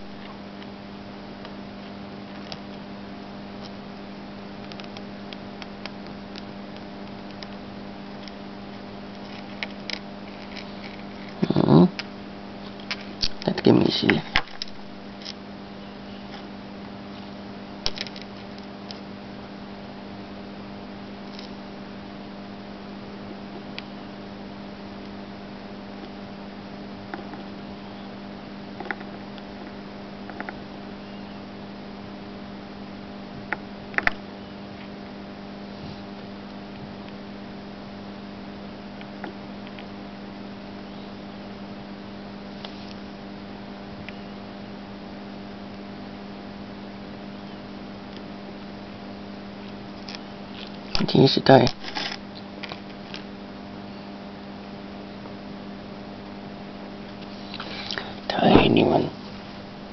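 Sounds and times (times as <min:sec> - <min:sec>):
electrical hum: 0:00.0 - 0:59.9.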